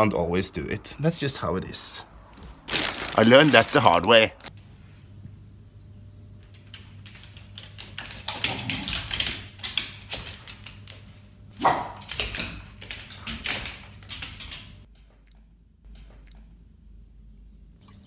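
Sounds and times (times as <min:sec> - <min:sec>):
dog barking: 0:11.6 - 0:12.1.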